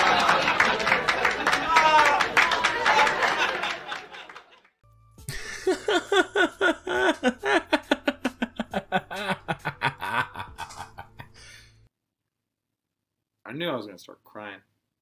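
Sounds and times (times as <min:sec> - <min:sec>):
person laughing hard: 0:05.3 - 0:11.5.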